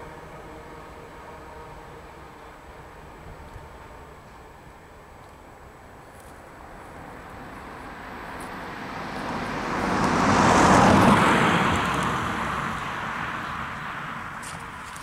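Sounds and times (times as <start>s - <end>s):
vehicle passing by: 6.5s - 15.0s.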